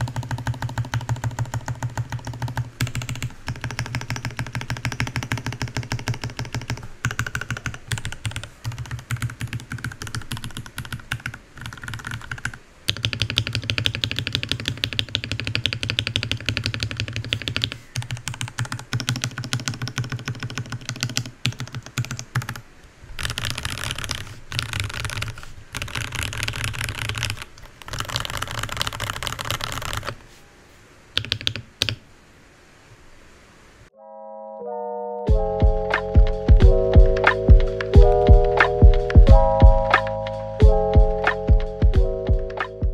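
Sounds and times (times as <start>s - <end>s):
mechanical keyboard typing: 0.0s - 22.6s, 23.2s - 30.2s, 31.2s - 32.0s.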